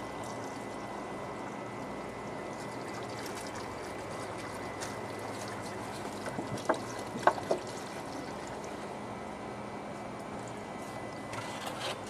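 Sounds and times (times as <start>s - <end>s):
steady hum: 0.0s - 12.0s
water pouring from jug: 1.8s - 8.9s.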